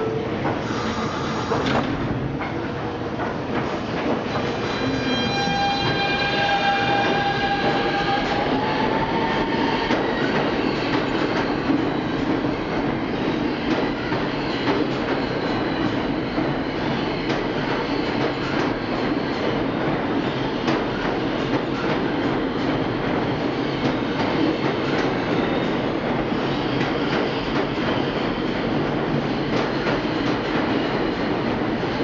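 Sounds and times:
subway cars rumbling: 0:00.0 - 0:32.0.

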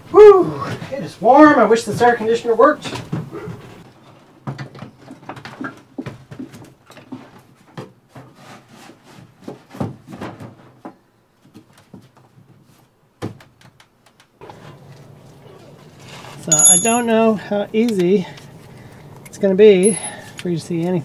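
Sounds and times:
air conditioner unit knocking and scraping: 0:04.4 - 0:12.6.

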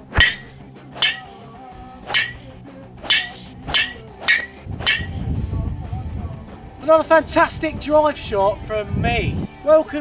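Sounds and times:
golf driver striking ball: 0:00.0 - 0:01.4, 0:02.1 - 0:05.2
background music: 0:00.0 - 0:10.0.

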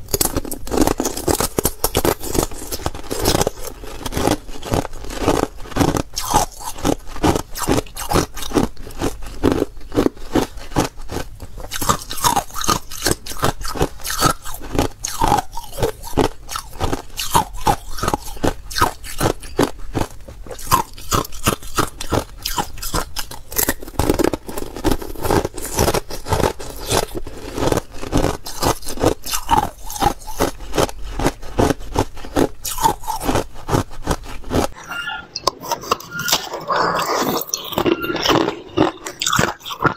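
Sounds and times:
ice crunching while chewed: 0:00.0 - 0:34.8, 0:35.4 - 0:39.9.

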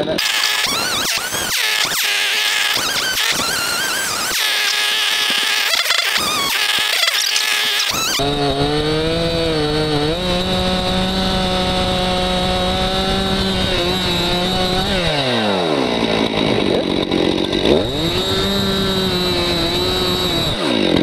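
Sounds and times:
chainsaw cutting wood: 0:00.0 - 0:21.0.

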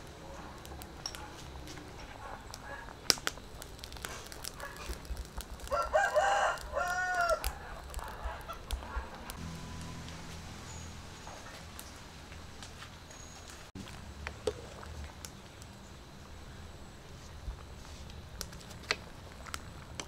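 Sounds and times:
faint clicks and pops: 0:02.5 - 0:09.4
rooster crowing: 0:05.6 - 0:07.8.

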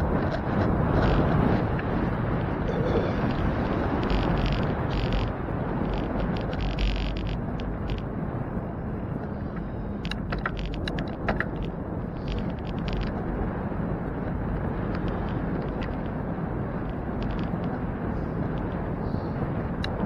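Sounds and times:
road rumble: 0:00.0 - 0:20.0
wind: 0:00.0 - 0:20.0
bicycle clattering over bumps: 0:03.2 - 0:08.1, 0:09.5 - 0:13.4.

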